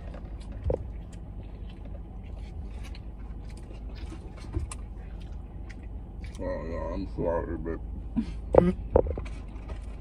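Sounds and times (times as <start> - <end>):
eating and drinking: 0.0 - 7.2
low steady hum: 0.0 - 10.0.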